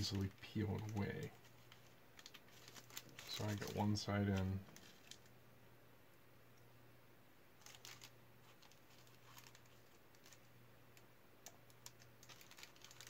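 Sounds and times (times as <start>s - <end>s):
wax paper rustling: 0.0s - 5.3s, 7.6s - 10.5s, 11.7s - 13.0s
low steady hum: 0.0s - 13.0s.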